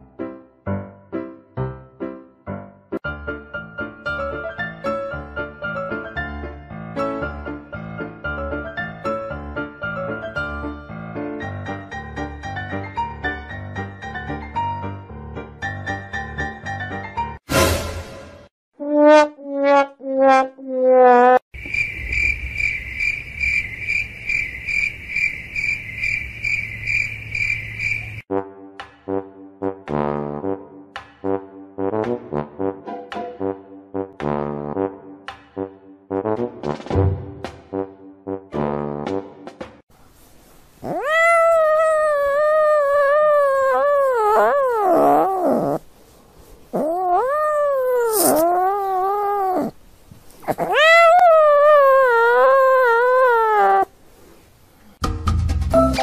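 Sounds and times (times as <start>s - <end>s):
cricket chirping: 21.5s - 28.2s
kitten wailing meows: 40.8s - 45.8s, 46.8s - 49.8s, 50.4s - 53.9s.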